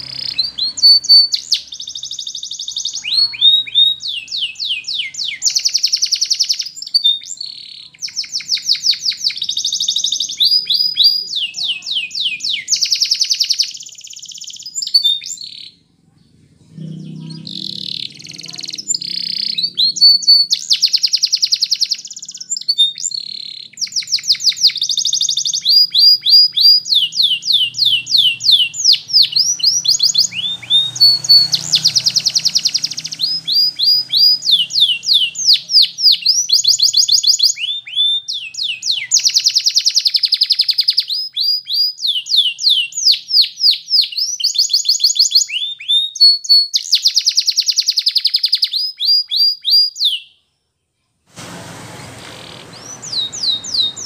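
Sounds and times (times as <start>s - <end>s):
canary singing: 0.0s - 50.4s, 52.0s - 54.0s.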